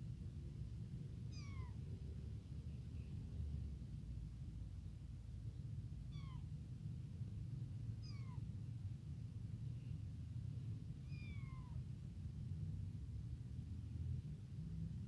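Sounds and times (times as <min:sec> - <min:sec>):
kitten meowing: 0:01.3 - 0:01.8, 0:06.1 - 0:06.5, 0:08.0 - 0:08.4, 0:11.0 - 0:11.8.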